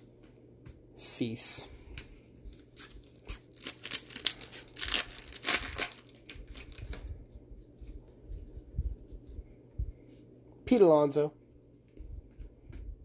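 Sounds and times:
foil pack tearing: 2.6s - 7.0s.

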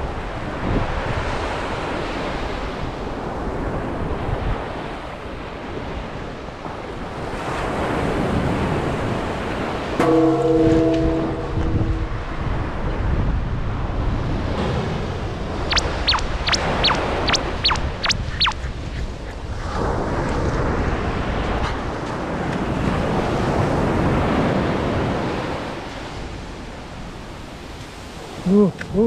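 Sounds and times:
wind on microphone: 0.0s - 29.0s
high falling whistles: 15.6s - 19.4s.

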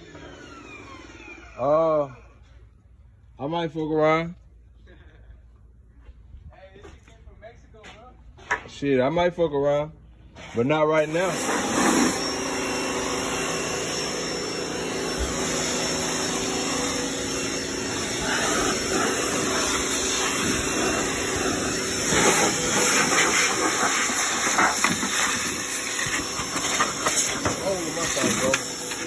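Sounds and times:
water spray hissing: 11.1s - 12.2s, 17.9s - 29.0s.

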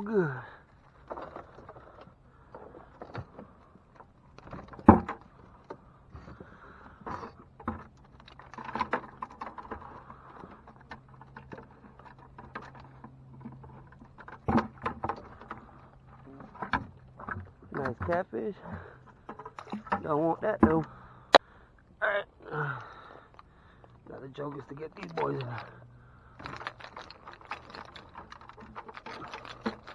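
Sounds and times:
low steady hum: 0.0s - 29.9s
wire trap rattling and knocking: 26.4s - 29.9s.

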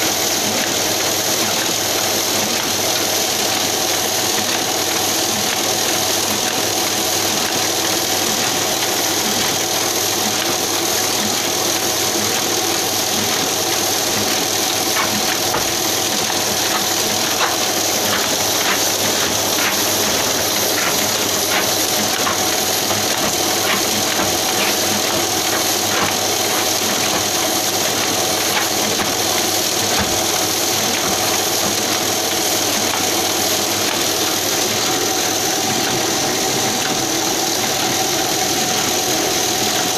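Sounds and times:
constant machine whine: 0.0s - 39.9s
printing press clattering: 0.0s - 39.9s.

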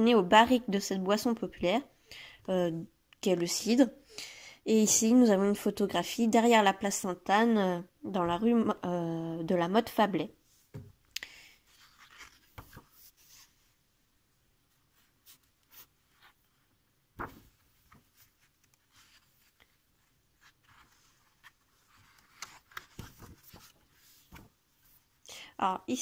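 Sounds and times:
book pages turning: 11.7s - 13.6s, 14.9s - 25.0s.

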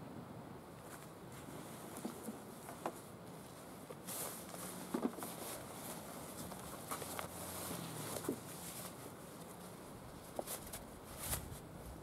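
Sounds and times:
nylon backpack rustling: 3.4s - 11.6s.

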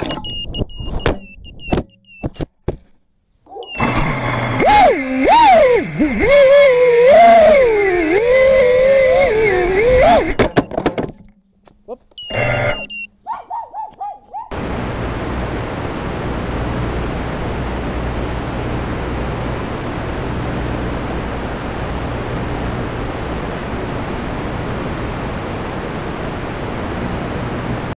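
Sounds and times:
static hiss: 14.6s - 28.0s.

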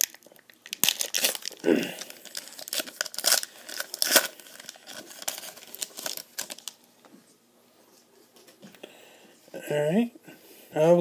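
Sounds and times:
foil wrapper crinkling: 0.0s - 6.8s.

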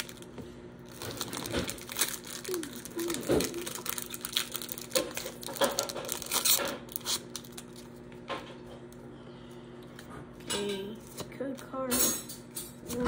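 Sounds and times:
foil wrapper crinkling and tearing: 0.0s - 8.0s.

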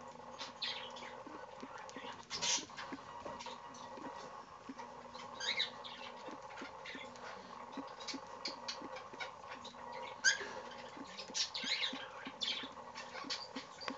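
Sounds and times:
beak clicks and scratches: 0.0s - 13.9s
faint hum: 0.0s - 13.9s
bird squeaks: 5.1s - 7.1s.

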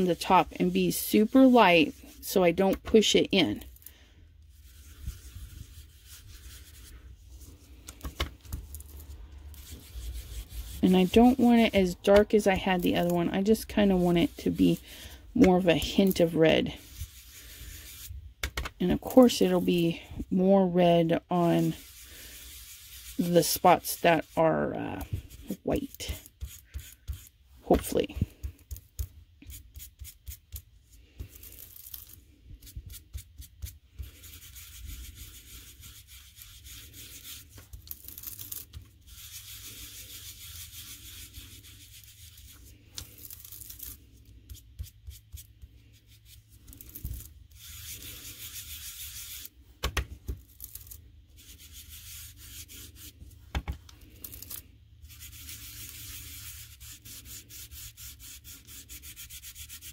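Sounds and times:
foam tool swishing on cardstock: 4.5s - 18.2s, 20.9s - 30.6s.

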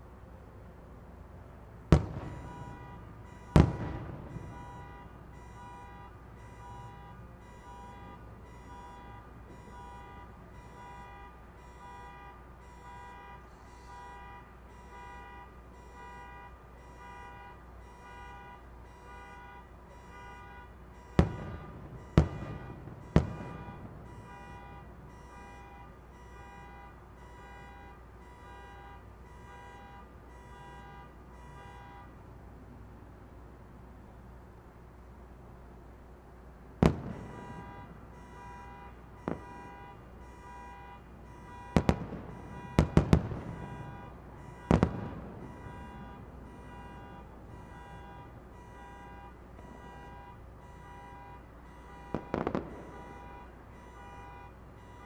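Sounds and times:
distant fireworks bursting: 1.8s - 12.2s, 20.0s - 26.7s, 36.8s - 55.0s.

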